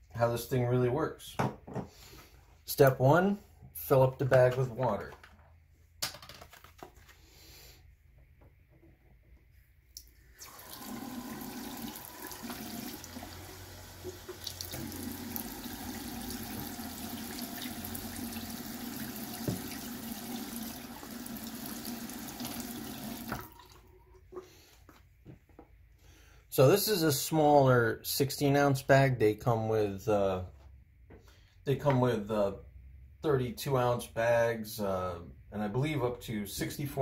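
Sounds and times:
faucet water splashing into basin: 10.0 - 23.8.

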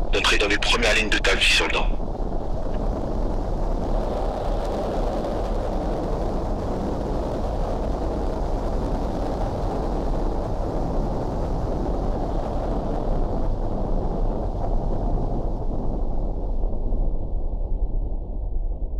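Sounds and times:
steady low rumble: 0.0 - 2.7.

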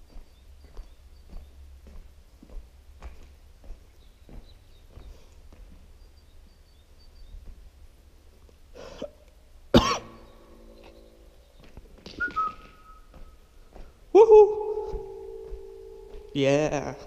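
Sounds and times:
person coughing with echo: 9.8 - 10.3
soft cough-like sound: 9.8 - 10.3.

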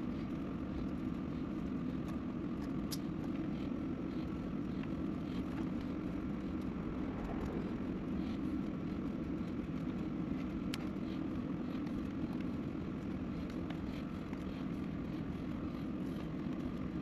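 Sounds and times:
steady low hum: 0.0 - 17.0
faint small clicks: 2.0 - 3.1.

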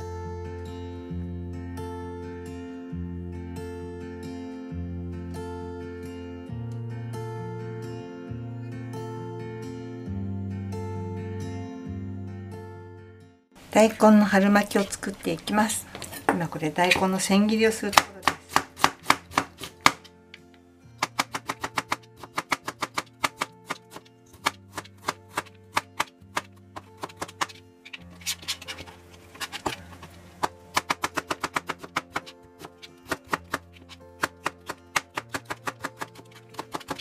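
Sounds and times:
background music: 0.0 - 37.0
knife chopping on cutting board: 17.9 - 20.0, 21.0 - 27.6.

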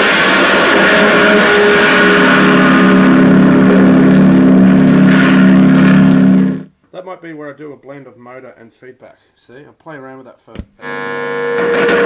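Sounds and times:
low feedback tones: 0.0 - 6.7, 10.8 - 12.0.

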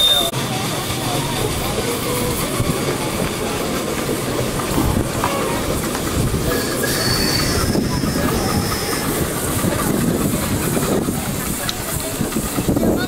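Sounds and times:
train wheels running over rails: 0.0 - 13.0
thin high squeal: 6.5 - 9.0.

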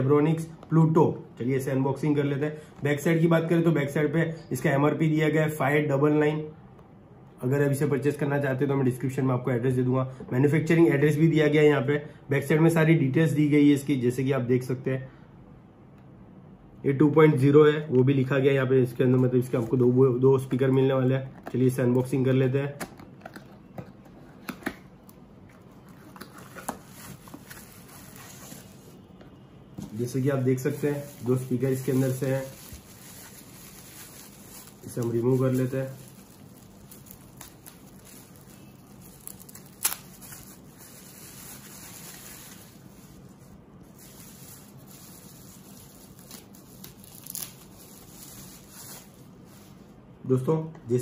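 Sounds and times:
soft rustling of packaging: 18.9 - 50.0.

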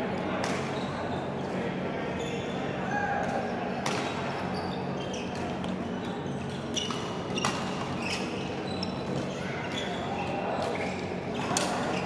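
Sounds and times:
shoes squeaking on court: 0.7 - 1.3, 2.1 - 2.6, 3.9 - 12.0
rackets striking shuttlecock: 3.2 - 4.2.

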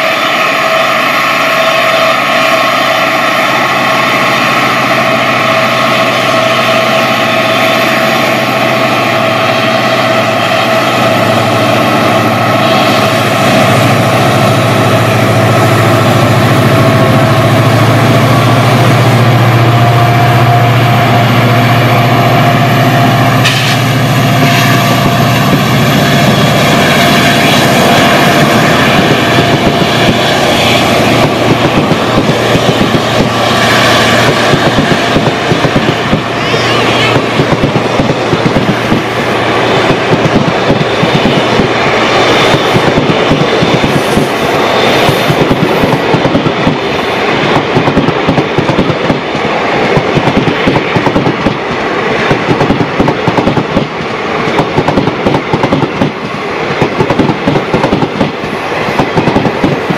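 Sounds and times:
diesel locomotive engine working hard: 0.0 - 59.9
train wheels clattering: 22.8 - 59.9.

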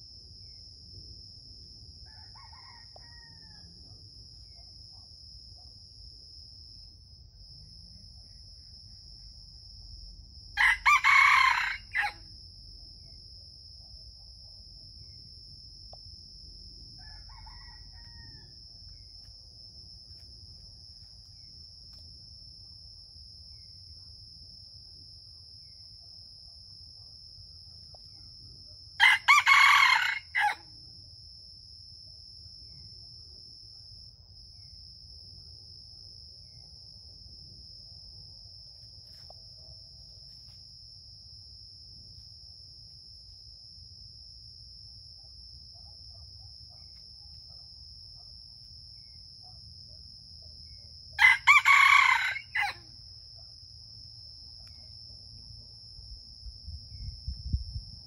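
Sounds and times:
rooster crowing: 2.0 - 3.8, 10.6 - 12.3, 17.0 - 18.7, 29.0 - 30.7, 51.2 - 52.9.

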